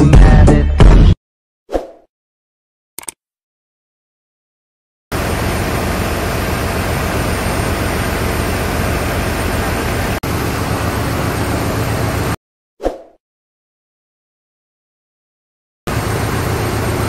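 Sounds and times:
engine-room machinery drone: 5.1s - 12.4s, 15.9s - 17.0s.

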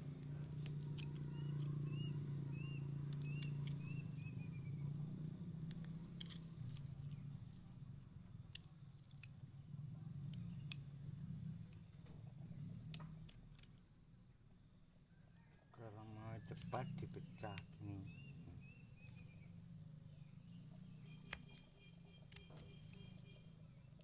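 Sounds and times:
low steady hum: 0.0s - 15.1s
small bird chirping: 0.4s - 24.0s.

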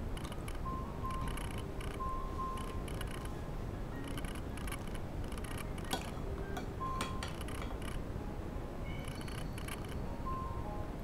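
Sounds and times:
steady background hiss: 0.0s - 11.0s
cutlery clinking on bowl: 5.9s - 7.8s.

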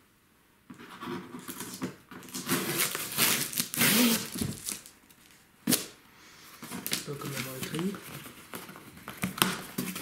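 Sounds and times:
packing tape ripping off box: 1.2s - 6.0s, 6.7s - 7.9s.

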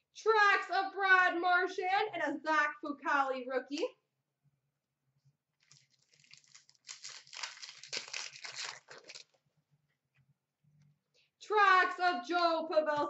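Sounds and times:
card pack wrapper tearing and crinkling: 5.6s - 9.4s.

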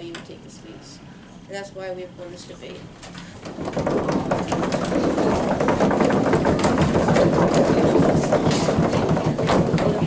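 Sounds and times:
small group clapping: 3.2s - 10.0s.

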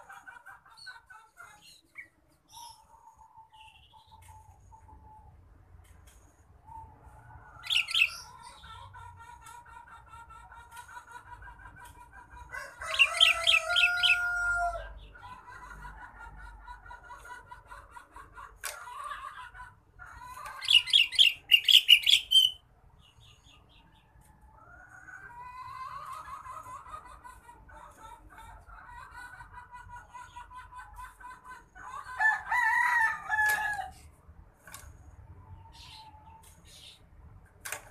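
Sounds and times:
background birds calling: 0.0s - 12.1s, 12.8s - 15.4s, 17.0s - 25.3s, 33.4s - 37.9s
bird chirping bursts: 7.6s - 8.5s, 20.6s - 23.6s.

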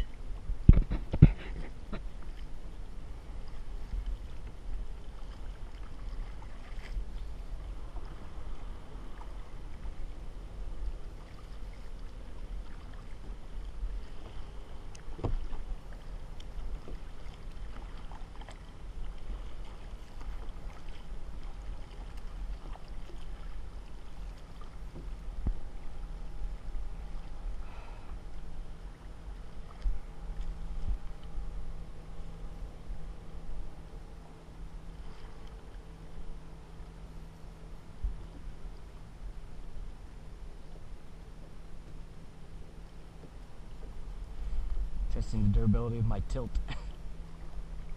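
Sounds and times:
paddle splashing water: 0.0s - 31.4s
wind rumble on microphone: 0.0s - 36.9s, 37.7s - 42.1s, 43.1s - 47.9s.

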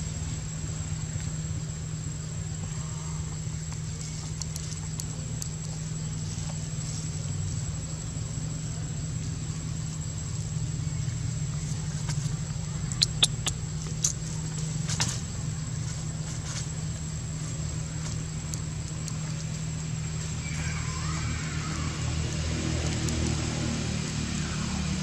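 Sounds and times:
low droning hum: 0.0s - 25.0s
sharp clicks: 12.9s - 14.2s.

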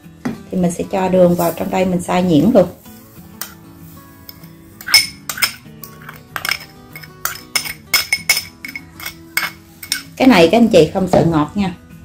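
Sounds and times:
soft background music: 0.0s - 12.0s
sugar poured and scraped: 1.2s - 1.8s, 2.6s - 10.2s
metal spoon clinking: 3.4s - 3.6s, 4.2s - 10.2s.

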